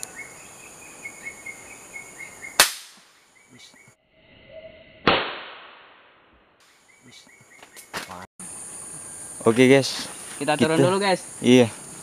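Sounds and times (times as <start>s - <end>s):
air rifle shots: 2.6s - 3.1s, 5.0s - 6.0s.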